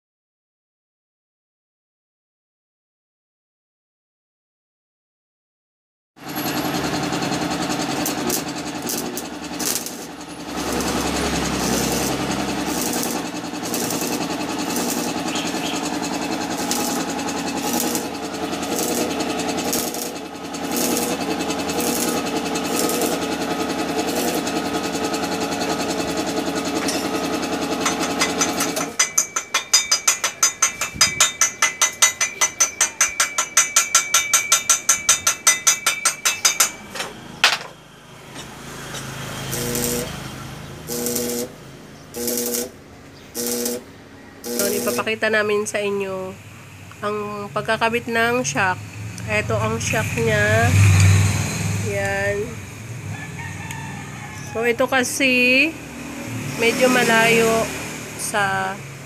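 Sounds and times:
arc welding crackling buzz: 0:06.2 - 0:52.9
hammer tapping on weld: 0:08.0 - 0:23.4, 0:27.8 - 0:37.8.

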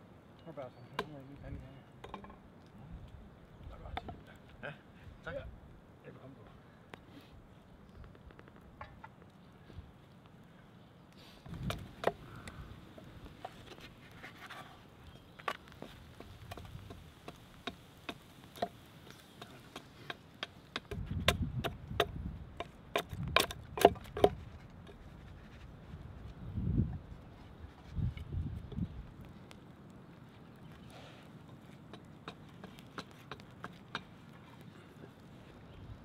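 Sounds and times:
campfire crackling: 0:00.0 - 0:36.0
hatchet strokes on wood: 0:15.5 - 0:24.5, 0:31.9 - 0:34.6.

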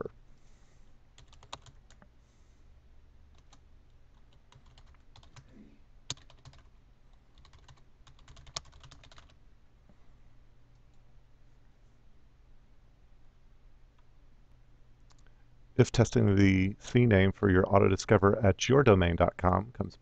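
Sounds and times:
faint typing on keyboard: 0:01.1 - 0:02.2, 0:03.3 - 0:09.4, 0:15.0 - 0:15.4.

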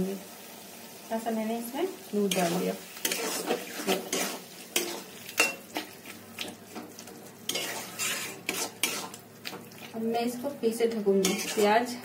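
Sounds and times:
food sizzling: 0:00.0 - 0:12.0
spatula scraping a pan: 0:02.3 - 0:10.0, 0:11.1 - 0:12.0.

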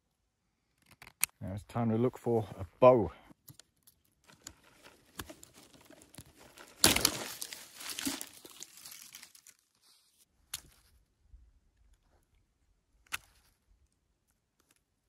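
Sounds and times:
twigs and leaves rustling: 0:03.4 - 0:11.0
branch snapping: 0:05.1 - 0:09.6.

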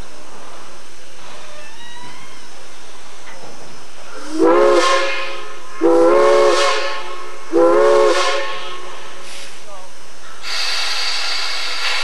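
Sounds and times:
steam locomotive whistle blasts: 0:04.3 - 0:08.9, 0:10.4 - 0:12.0.

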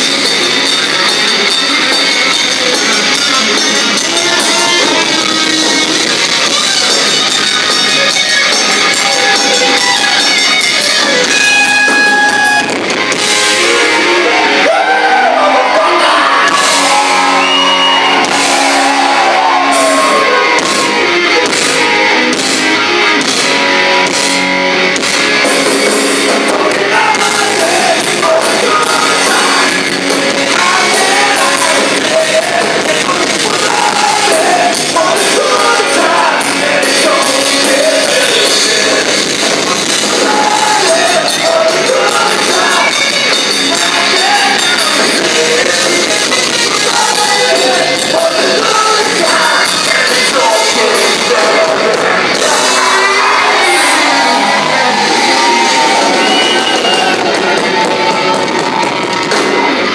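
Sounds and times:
distorted electric guitars: 0:00.0 - 0:59.9
drums: 0:00.0 - 0:59.9
person singing and shouting: 0:26.2 - 0:39.2, 0:40.1 - 0:58.4.

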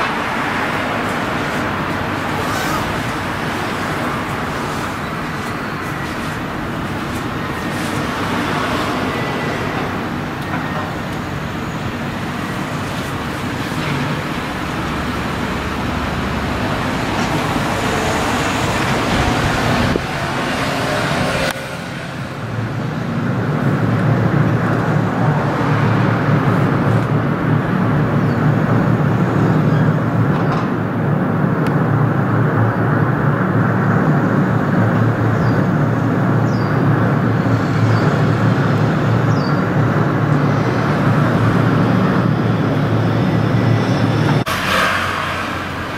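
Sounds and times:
ship engine and propeller wash: 0:00.0 - 0:28.1.

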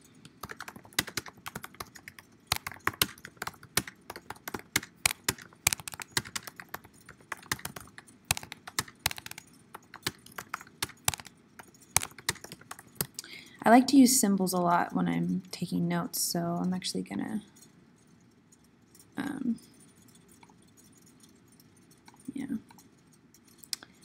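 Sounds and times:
keyboard key clicks: 0:00.4 - 0:13.2.

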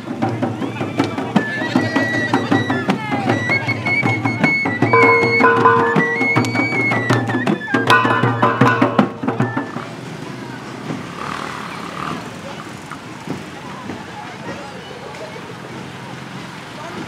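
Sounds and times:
hand drums beating: 0:00.0 - 0:09.8
street noise: 0:00.0 - 0:17.0
flute melody: 0:01.4 - 0:09.9.

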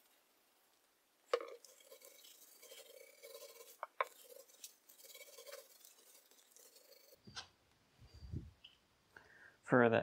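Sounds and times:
glue roller wet rolling: 0:01.3 - 0:07.4.

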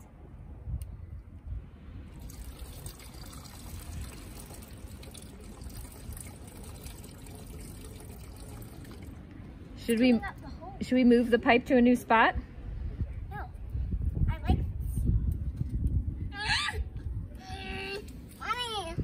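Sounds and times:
water running through pipe: 0:02.1 - 0:09.3.

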